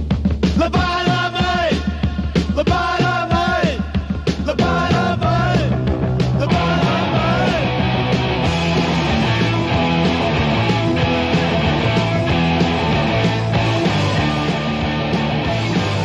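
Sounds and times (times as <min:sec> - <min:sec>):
loud rock music: 0:00.0 - 0:16.0.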